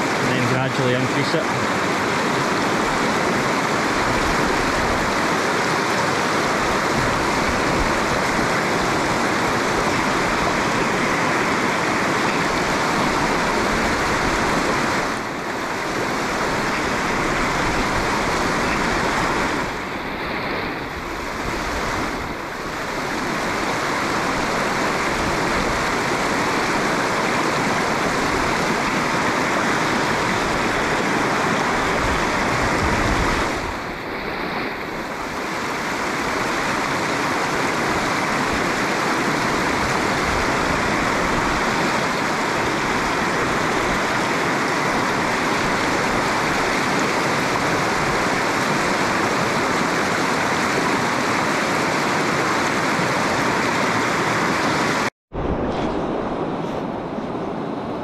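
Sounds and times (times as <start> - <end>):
river water rushing: 0.0 - 58.0.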